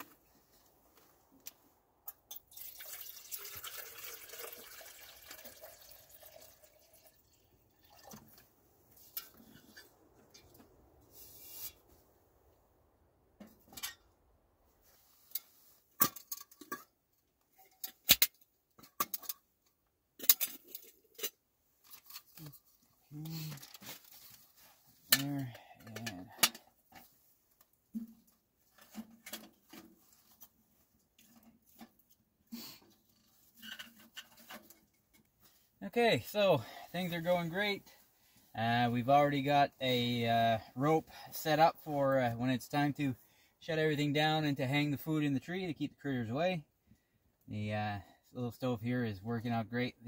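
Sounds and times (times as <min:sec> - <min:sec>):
water pouring: 0:02.3 - 0:09.4.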